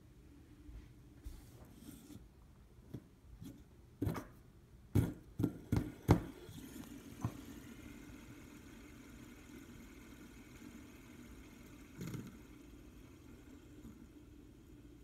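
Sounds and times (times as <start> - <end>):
fidget spinner whirring: 5.7 - 15.0.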